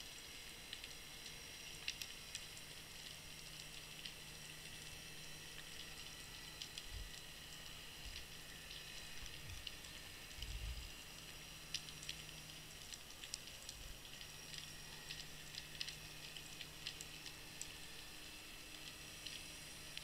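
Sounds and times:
sharp clicks and crackles: 0.1s - 20.0s.

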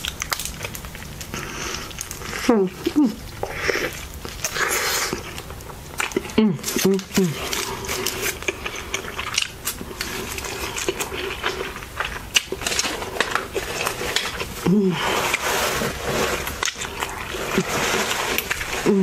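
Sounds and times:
close chewing and mouth clicks: 0.0s - 19.0s
low vocal moan: 14.6s - 15.3s.

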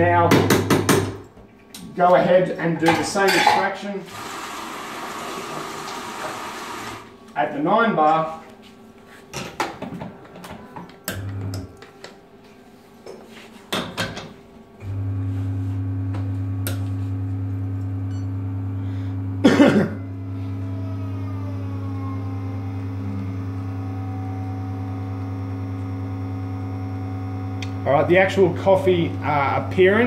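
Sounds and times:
espresso machine pump humming: 4.1s - 7.2s, 14.8s - 30.0s.

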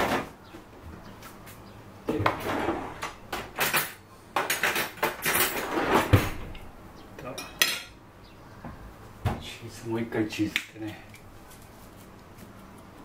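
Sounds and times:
scraping and rustling: 11.2s - 13.0s.

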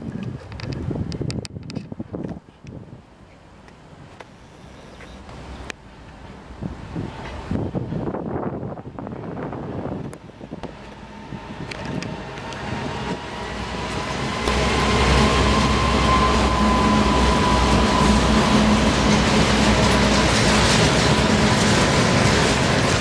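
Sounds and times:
diesel locomotive engine rumble: 3.7s - 23.0s
steady whine: 10.1s - 23.0s.

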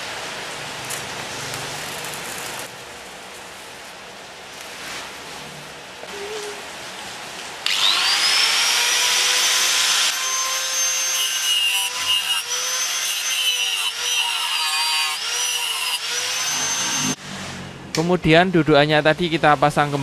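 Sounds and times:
angle grinder cutting metal: 7.7s - 17.2s.

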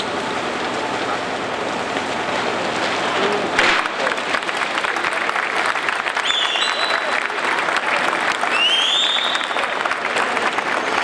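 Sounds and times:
voices: 0.7s - 11.0s
crowd applauding: 3.4s - 11.0s.

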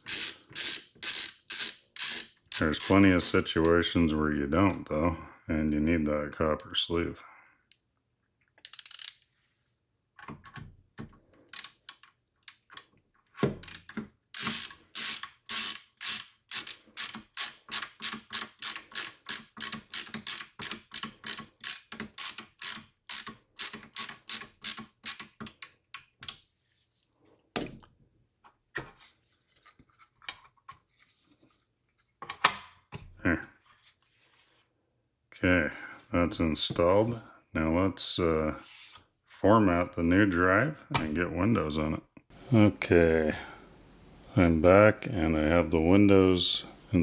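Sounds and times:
ratcheting screwdriver clicking: 0.0s - 2.9s, 8.6s - 9.2s, 11.5s - 12.9s, 13.6s - 25.6s.

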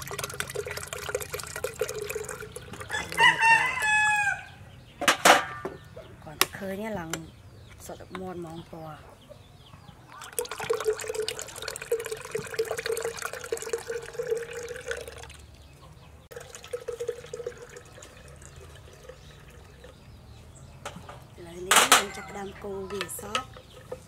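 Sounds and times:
milk trickling into pitcher: 0.0s - 3.9s, 10.1s - 15.6s, 16.3s - 20.1s.

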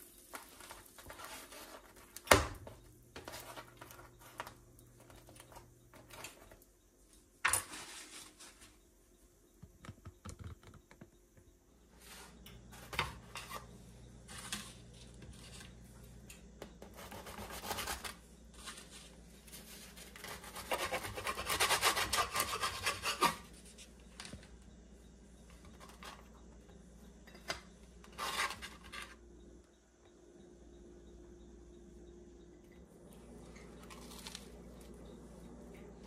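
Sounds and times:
knife sawing through bread: 20.2s - 23.4s.

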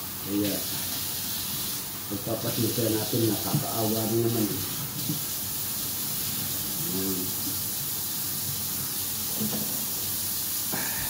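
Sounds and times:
tap water running into sink: 0.0s - 10.7s.

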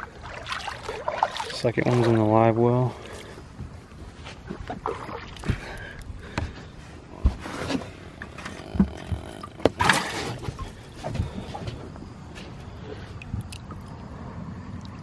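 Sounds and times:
water splash: 0.0s - 2.3s, 9.4s - 10.6s
water moving in tank: 0.0s - 6.6s, 7.2s - 14.1s.

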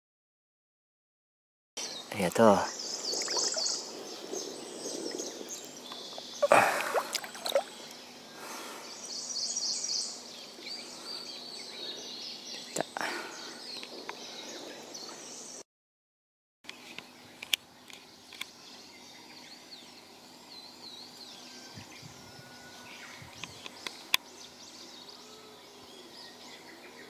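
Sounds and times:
high chirping: 2.8s - 4.6s
water drips: 6.4s - 7.8s
water sloshing and splashing: 6.4s - 7.8s.

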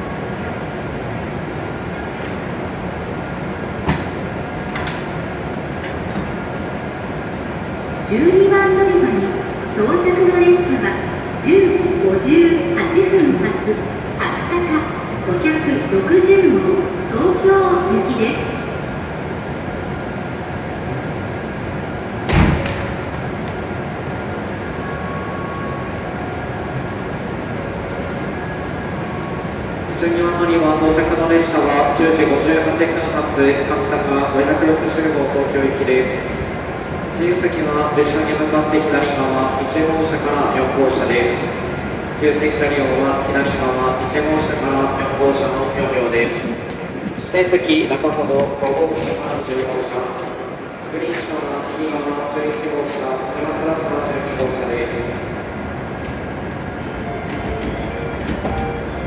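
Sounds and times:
train equipment humming: 0.0s - 59.0s
train door shutting thud: 3.8s - 5.1s, 22.2s - 23.1s.

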